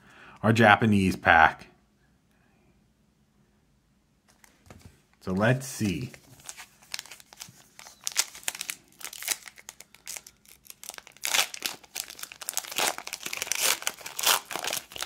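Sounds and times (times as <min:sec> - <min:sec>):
foil wrapper crinkling and tearing: 0:05.9 - 0:15.0.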